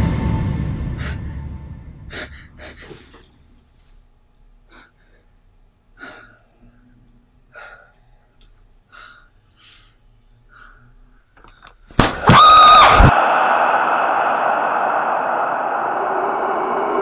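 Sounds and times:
horror music sting: 0:00.0 - 0:02.2, 0:13.1 - 0:17.0.

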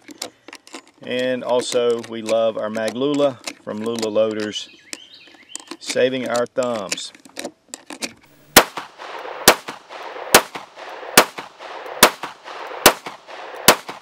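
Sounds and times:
pistol shots with echo: 0:08.4 - 0:14.0.

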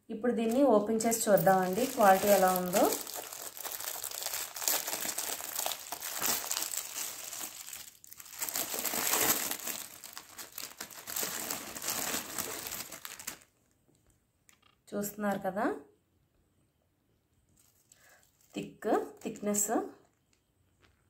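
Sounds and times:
plastic wrap crinkling: 0:00.4 - 0:14.8, 0:17.5 - 0:19.5.

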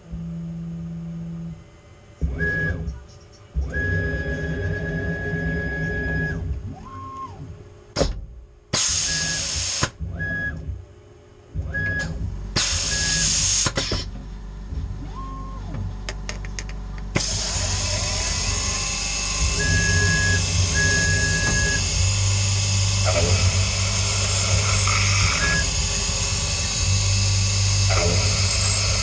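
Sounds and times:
spindle hiss and hum: 0:00.0 - 0:29.0
axis motors whining: 0:00.1 - 0:07.8, 0:08.8 - 0:10.8, 0:11.5 - 0:15.9, 0:17.0 - 0:29.0
air hiss bursts: 0:08.8 - 0:09.9
drill boring into plate: 0:08.8 - 0:09.9, 0:12.6 - 0:14.0, 0:17.2 - 0:29.0.

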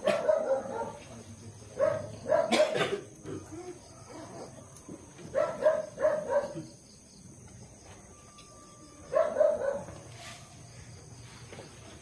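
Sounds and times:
dog barking: 0:00.0 - 0:01.1, 0:01.8 - 0:02.9, 0:05.3 - 0:06.7, 0:09.1 - 0:10.1.

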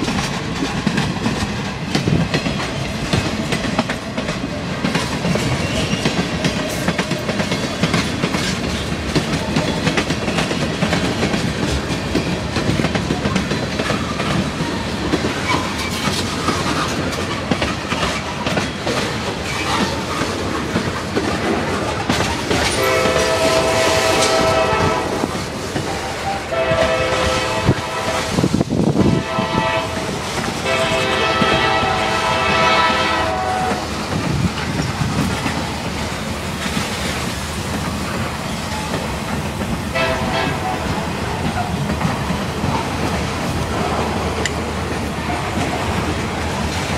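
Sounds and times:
train wheels clattering over rails: 0:00.0 - 0:46.9
locomotive air horn: 0:22.7 - 0:33.9, 0:39.9 - 0:41.0.

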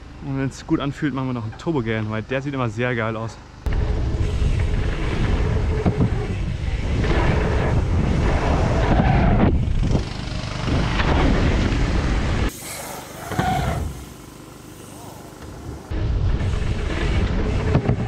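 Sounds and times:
wind buffeting microphone: 0:03.7 - 0:12.4.

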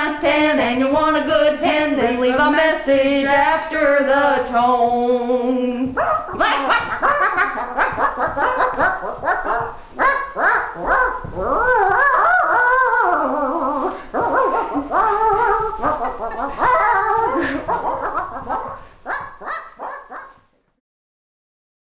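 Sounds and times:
dog-like barks whines and howls: 0:06.0 - 0:20.5.

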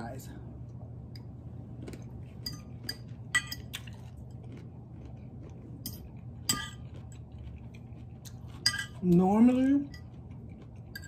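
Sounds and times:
fork clinking on a ceramic plate: 0:02.4 - 0:03.8, 0:05.8 - 0:07.0, 0:08.6 - 0:09.1.

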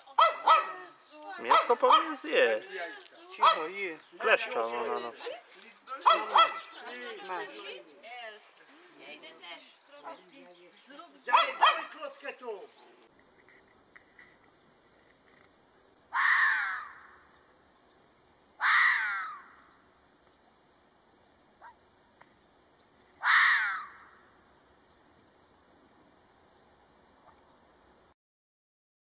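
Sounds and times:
fox screaming calls: 0:00.2 - 0:02.2, 0:06.0 - 0:06.8, 0:16.1 - 0:17.2, 0:18.6 - 0:19.7, 0:23.2 - 0:24.2.

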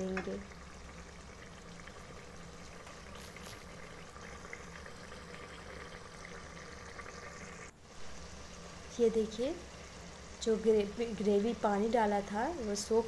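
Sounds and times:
gravy bubbling with small pops: 0:00.0 - 0:07.8.

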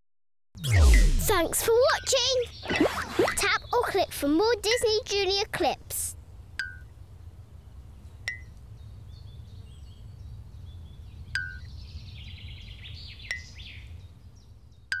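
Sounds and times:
steady low rumble: 0:00.6 - 0:04.2
birds chirping and twittering: 0:00.6 - 0:15.0.

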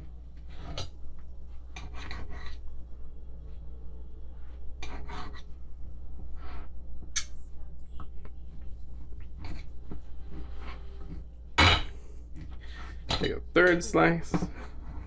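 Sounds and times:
knife scraping ceramic plate: 0:04.8 - 0:05.5.

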